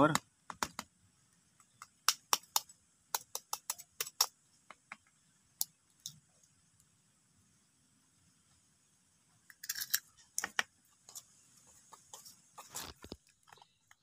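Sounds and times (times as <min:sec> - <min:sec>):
egg tapped against knife blade: 0:01.6 - 0:05.7.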